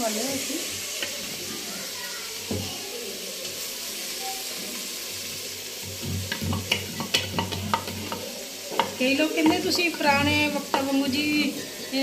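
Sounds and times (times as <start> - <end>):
spoon tapping wood: 6.3 - 11.0.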